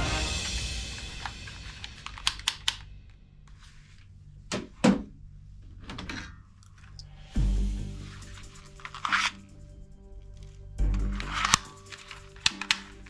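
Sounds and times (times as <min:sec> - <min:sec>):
toy pistol plastic clicks: 0:11.2 - 0:13.0.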